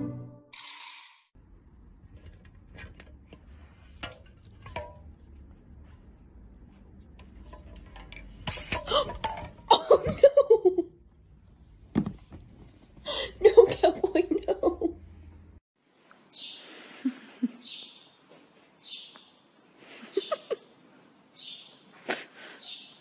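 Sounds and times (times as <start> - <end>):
person laughing: 8.9 - 11.0, 13.1 - 15.0, 16.9 - 17.8, 19.9 - 20.7.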